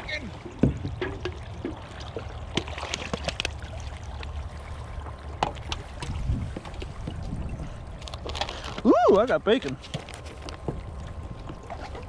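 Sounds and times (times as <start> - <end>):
steady low rumble: 0.0 - 9.5
water splashing against kayaks: 0.0 - 12.0.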